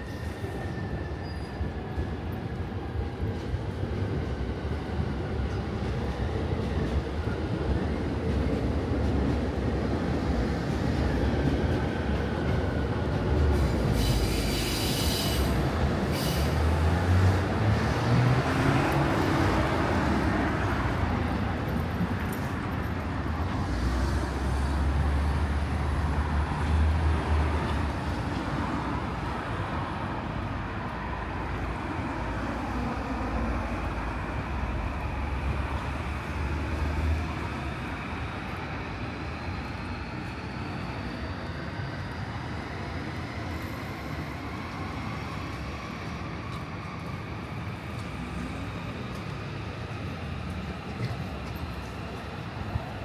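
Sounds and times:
high wheel squeal: 0:00.0 - 0:01.8, 0:13.9 - 0:16.6
train rumbling on tracks: 0:00.0 - 0:53.0.

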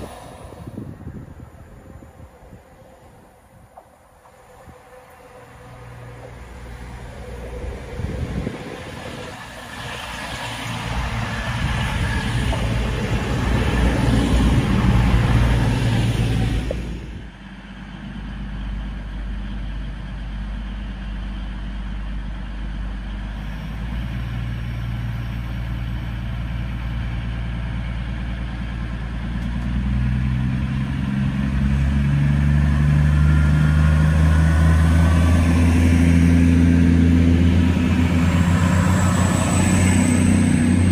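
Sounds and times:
train wheels rushing: 0:00.0 - 0:17.5, 0:30.9 - 0:40.9
diesel train engines running: 0:00.0 - 0:40.9.

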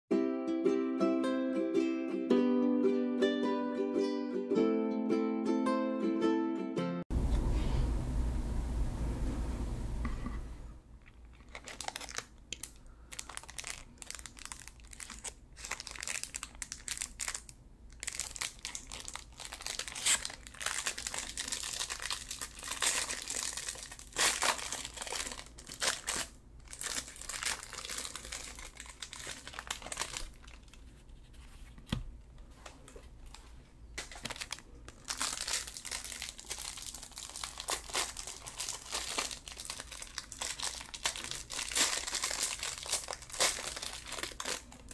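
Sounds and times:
plastic wrapper crinkling: 0:11.0 - 0:30.9, 0:34.0 - 0:44.9.

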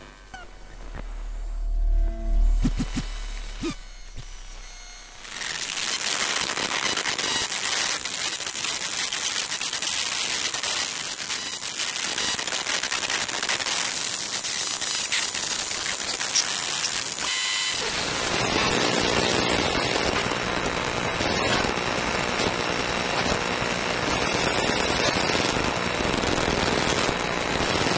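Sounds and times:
electrical buzz with steady tones: 0:00.0 - 0:08.4
electrical crackling hiss: 0:00.0 - 0:09.5.

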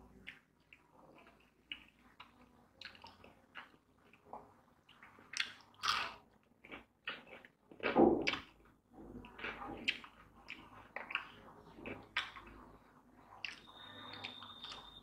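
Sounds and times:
man chewing fried food: 0:00.0 - 0:15.0.

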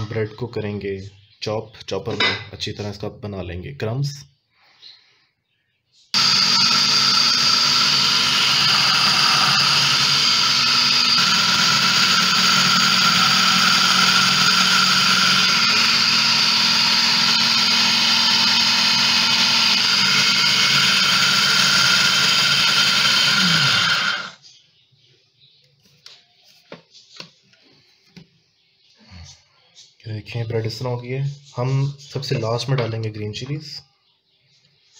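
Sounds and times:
food processor chopping bread: 0:06.2 - 0:24.4.

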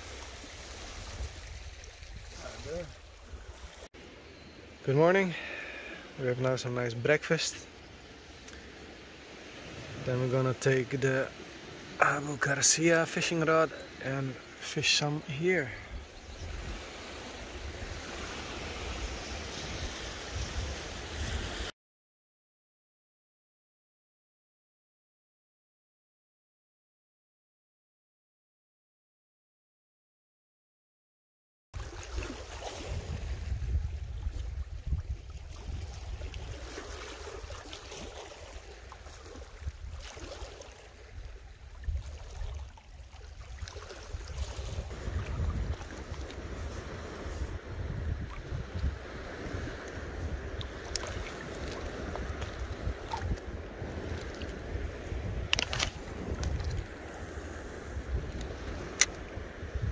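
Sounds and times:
small waves washing onto pebbles: 0:00.0 - 0:03.9, 0:16.5 - 0:21.7, 0:31.8 - 0:59.9
wind rumbling on microphone: 0:00.0 - 0:03.9, 0:15.7 - 0:21.7, 0:31.8 - 0:59.9.

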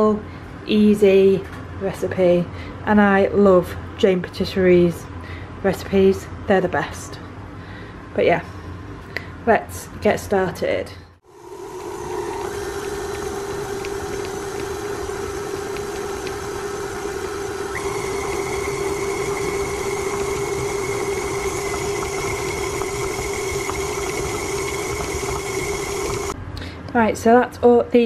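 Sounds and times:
mixer high whine: 0:11.2 - 0:26.4
stand mixer motor hum: 0:11.3 - 0:26.4.

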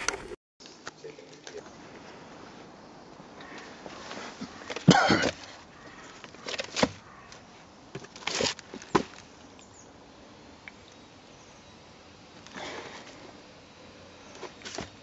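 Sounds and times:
cardboard scraping: 0:08.0 - 0:09.2.

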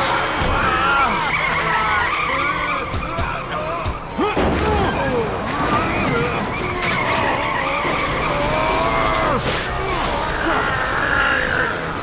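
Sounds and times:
cartoon skid screeching squeal: 0:00.6 - 0:03.0, 0:05.6 - 0:11.8.

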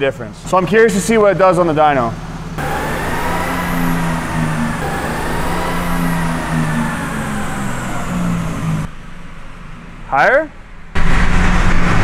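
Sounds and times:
diesel engine droning: 0:00.4 - 0:10.2
faint whine: 0:02.6 - 0:09.9.

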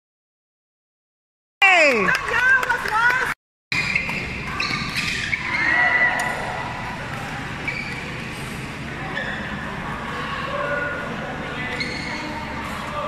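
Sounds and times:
crowd chatter and calls: 0:03.8 - 0:13.0.

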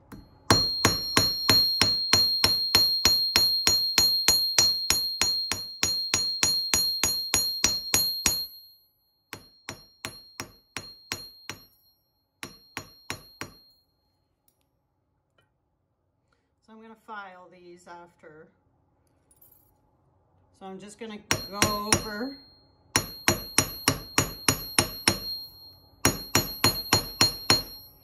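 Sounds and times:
hammer ringing on anvil: 0:00.0 - 0:13.8, 0:21.3 - 0:28.0.

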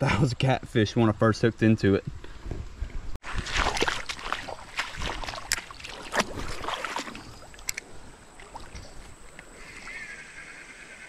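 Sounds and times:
water moving against hull: 0:02.8 - 0:09.9.

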